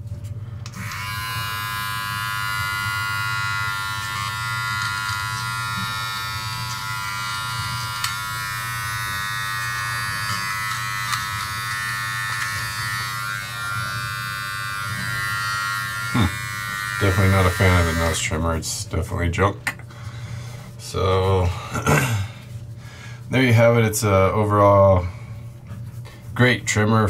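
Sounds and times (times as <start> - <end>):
electric trimmer buzzing: 0.6 - 18.3.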